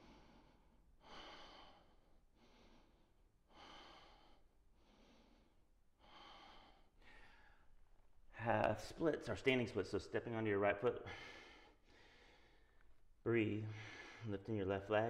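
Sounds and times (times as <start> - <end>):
man breathing deeply: 0.0 - 7.8, 11.0 - 12.9, 13.6 - 14.3.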